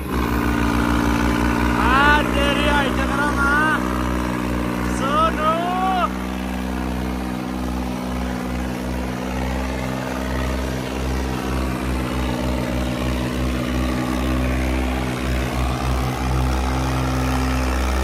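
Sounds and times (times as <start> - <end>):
diesel tractor engines droning: 0.0 - 18.0.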